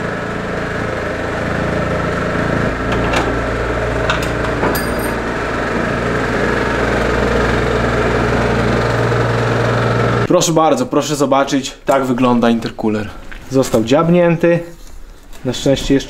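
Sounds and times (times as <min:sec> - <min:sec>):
low machine hum: 0:00.0 - 0:16.0
metal tool clicks and clinks: 0:04.1 - 0:05.2.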